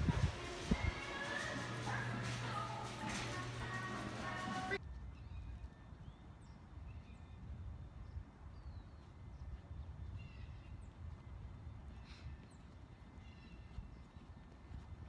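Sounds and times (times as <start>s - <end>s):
wind rumble on microphone: 0.0s - 1.4s, 4.8s - 15.0s.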